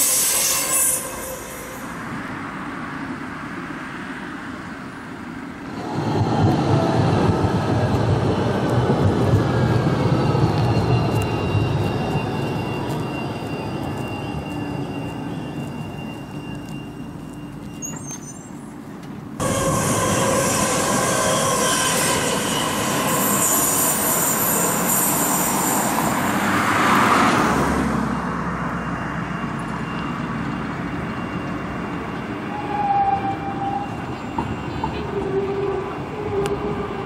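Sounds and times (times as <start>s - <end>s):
wheel squeal: 0.0s - 2.0s, 9.4s - 18.8s, 19.4s - 26.6s, 28.8s - 37.0s
train running: 0.0s - 37.0s
car passing: 24.6s - 30.0s.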